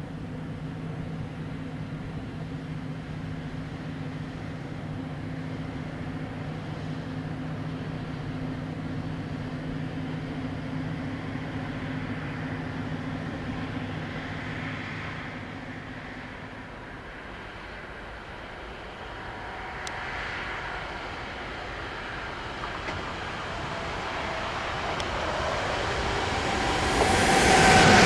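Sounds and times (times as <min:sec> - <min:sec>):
boat diesel engine drone: 0:00.0 - 0:28.0
rushing noise: 0:13.4 - 0:28.0.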